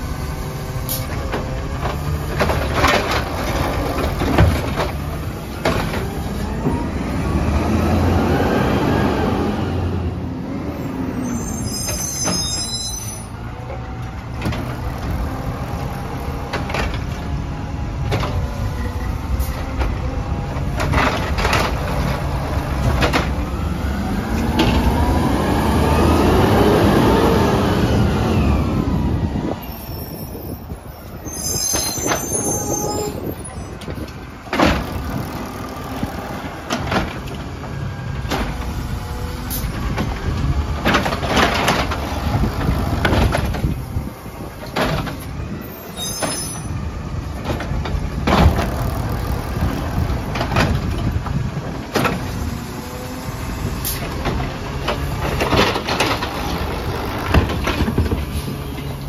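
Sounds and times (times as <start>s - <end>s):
knocks and bangs of carts: 1.0s - 6.8s, 19.6s - 23.7s, 33.4s - 38.8s, 39.7s - 45.4s, 46.2s - 52.4s, 53.9s - 59.0s
hydraulic arm lifting carts: 10.9s - 59.0s
garbage truck engine running: 46.8s - 59.0s.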